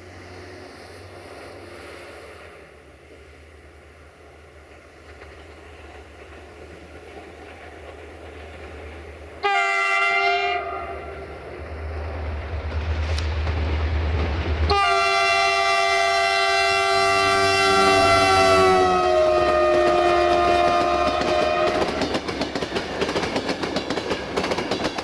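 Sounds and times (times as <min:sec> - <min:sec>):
diesel locomotive rumbling: 0:00.0 - 0:25.0
train air horn blasts: 0:09.4 - 0:11.3, 0:14.7 - 0:22.0.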